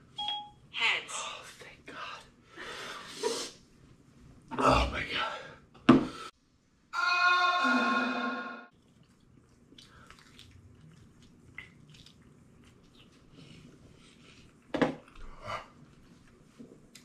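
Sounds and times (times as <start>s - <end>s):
chewing: 8.7s - 17.0s.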